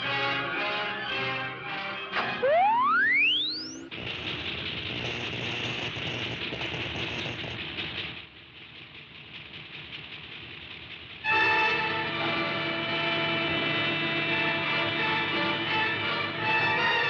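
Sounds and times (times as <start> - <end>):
crackling electrical noise: 3.2 - 8.2.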